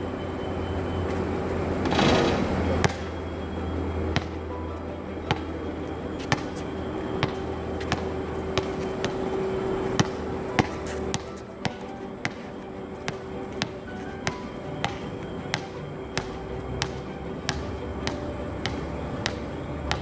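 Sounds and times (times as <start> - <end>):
steady hum: 0.0 - 20.0
basketball bouncing on hard court: 4.2 - 4.4, 6.2 - 6.5, 7.2 - 8.0, 8.6 - 9.3, 10.0 - 12.4, 13.1 - 20.0.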